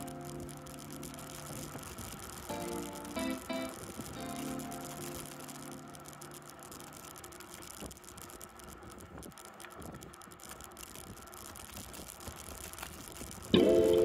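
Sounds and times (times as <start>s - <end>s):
music track: 0.0s - 7.5s, 13.6s - 14.0s
bicycle tyres hissing on asphalt: 0.0s - 14.0s
bike rattles and clicks: 0.0s - 14.0s.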